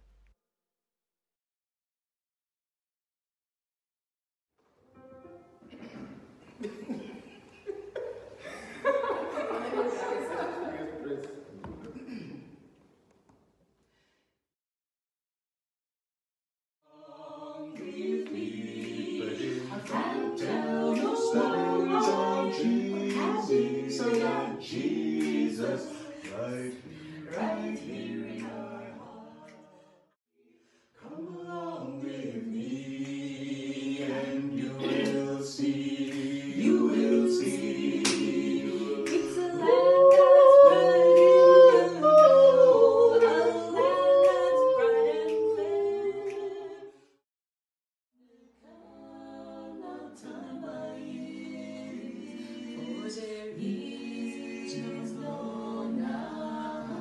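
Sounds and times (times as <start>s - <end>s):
a cappella group singing: 16.9s - 47.2s, 48.4s - 57.0s.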